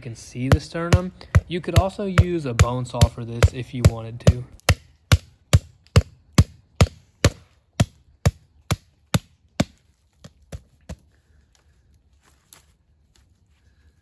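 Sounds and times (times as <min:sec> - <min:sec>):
hatchet chopping bone: 0:00.4 - 0:11.0.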